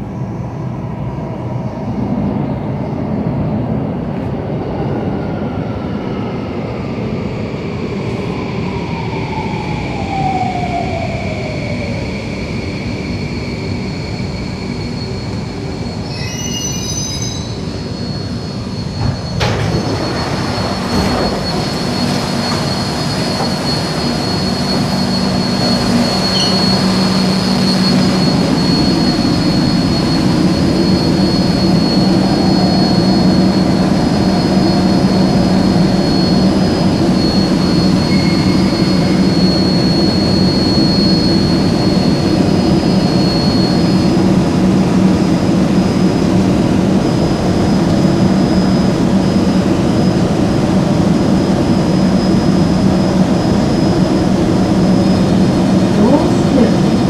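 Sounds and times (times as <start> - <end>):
low hum of standing train: 0.0 - 57.0
steady high tone: 10.4 - 44.2
train motor whine braking: 13.8 - 44.2
doors sliding open: 18.5 - 31.0.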